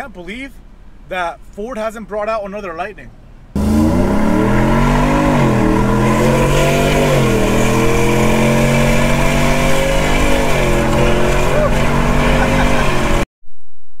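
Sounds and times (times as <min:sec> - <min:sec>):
engine accelerating with gear shifts: 0:03.6 - 0:13.2.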